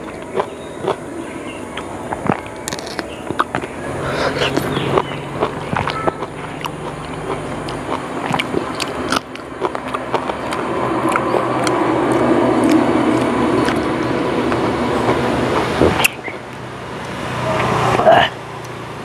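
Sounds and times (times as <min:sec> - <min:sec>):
passing vehicle rumble: 0:00.0 - 0:19.0
eating and handling clicks: 0:01.8 - 0:03.8, 0:04.4 - 0:13.8.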